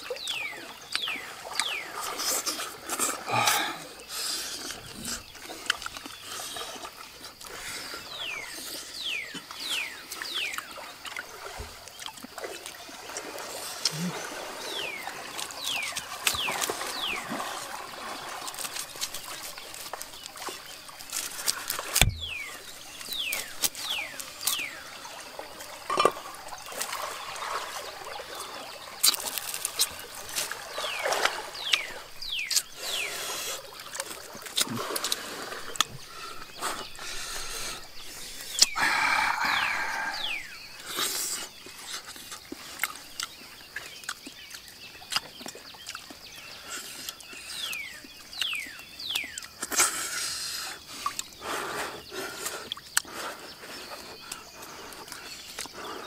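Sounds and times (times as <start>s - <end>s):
stream water trickling: 0.0s - 56.0s
eating mouth sounds: 13.7s - 14.2s
knife cutting into gourd shell: 21.9s - 22.4s.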